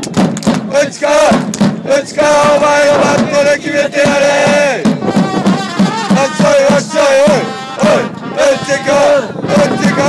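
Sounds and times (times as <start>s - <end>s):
crowd singing in unison: 0.6s - 10.0s.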